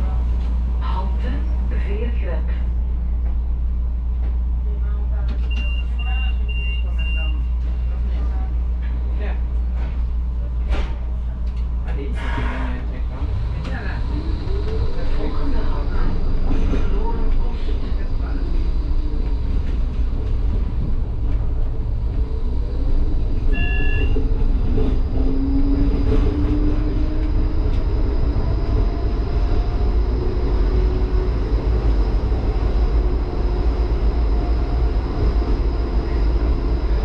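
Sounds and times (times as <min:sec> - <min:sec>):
tram rumbling with faint whine: 0:00.0 - 0:37.0
short high beep: 0:23.5 - 0:24.2.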